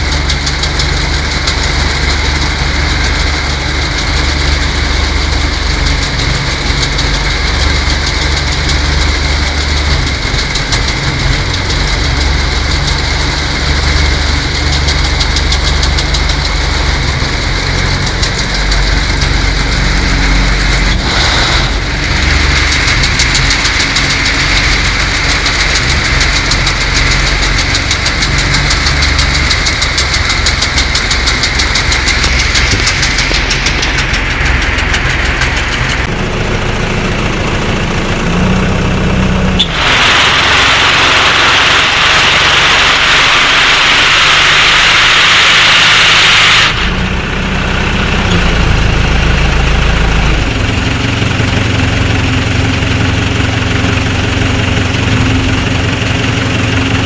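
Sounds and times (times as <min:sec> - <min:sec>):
harvester engine running: 0:00.0 - 0:57.0
loud rushing hiss: 0:39.6 - 0:47.9.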